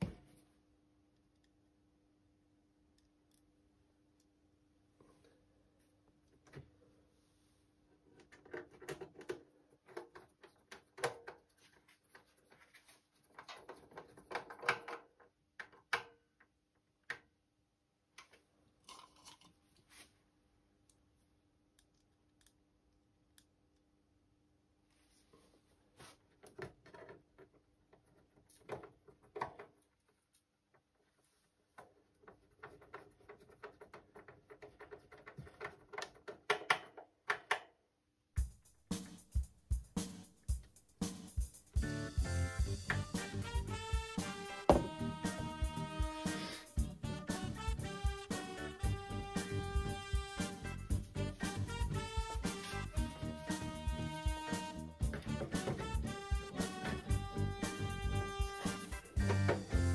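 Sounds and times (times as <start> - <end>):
screwdriver clicks and scrapes on metal: 8.2 - 16.1, 26.4 - 30.5, 31.8 - 37.6.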